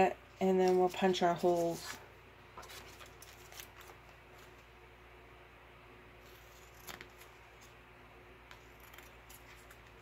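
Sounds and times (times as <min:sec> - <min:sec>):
low steady hum: 0:00.0 - 0:10.0
scissors snipping paper: 0:08.5 - 0:10.0.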